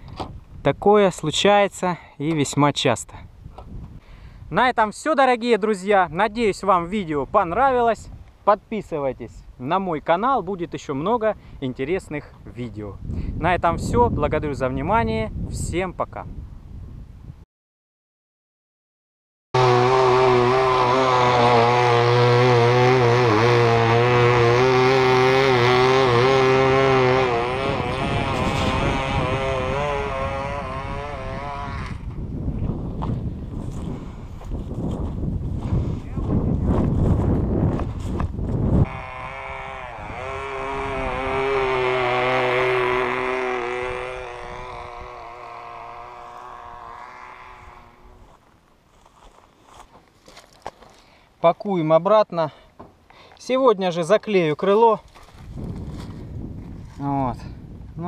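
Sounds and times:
low wind rumble on microphone: 3.2 - 4.6, 11.3 - 17.4, 26.8 - 49.1, 55.1 - 58.0
model airplane engine buzzing: 19.6 - 32.2, 38.8 - 48.4.

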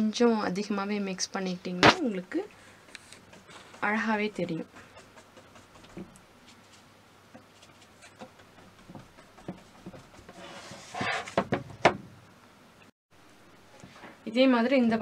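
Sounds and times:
canvas scraping on table: 9.6 - 11.5.

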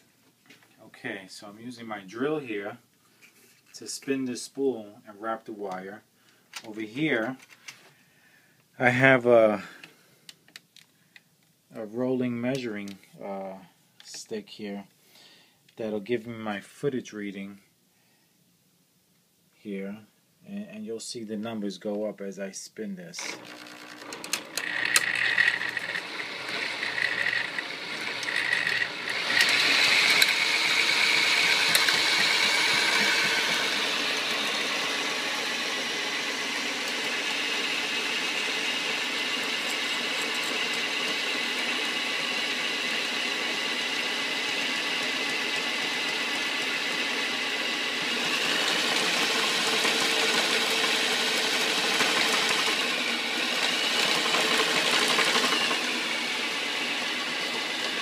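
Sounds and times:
electric drill whirring: 23.2 - 58.0.

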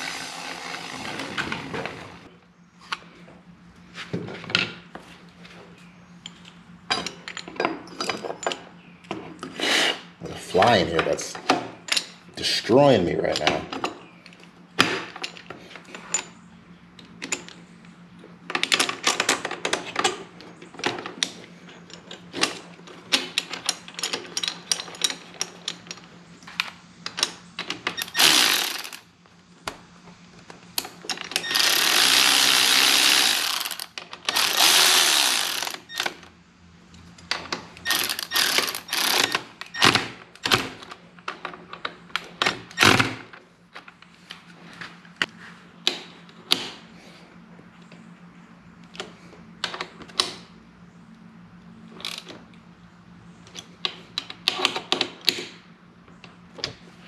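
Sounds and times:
tools and bolts clinking: 6.2 - 8.8, 30.8 - 36.2, 37.2 - 39.9
cordless ratchet running: 28.0 - 29.0, 31.4 - 36.2, 37.8 - 39.4.

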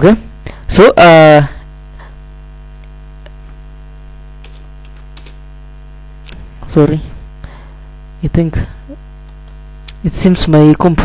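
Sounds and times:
electrical mains hum: 0.0 - 11.0
keyboard typing clicks: 4.4 - 5.4, 9.2 - 9.6.

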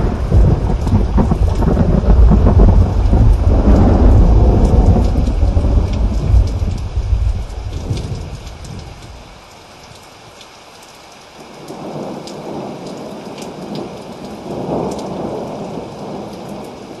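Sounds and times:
rolling thunder: 0.0 - 9.3
rain hiss with crackles: 0.0 - 17.0.

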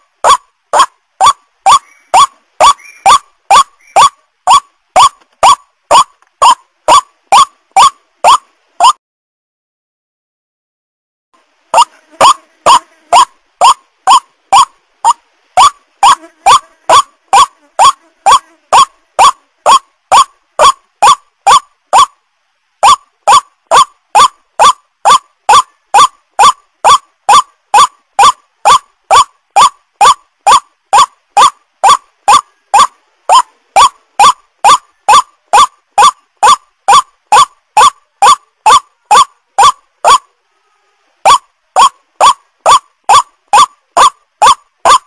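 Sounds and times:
waterhen call: 0.2 - 9.0, 11.7 - 22.2, 22.8 - 40.3, 41.2 - 45.0.

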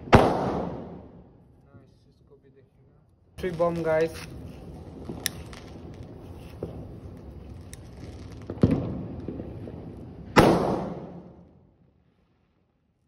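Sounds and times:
firecracker bangs: 0.0 - 1.2, 3.4 - 11.5.

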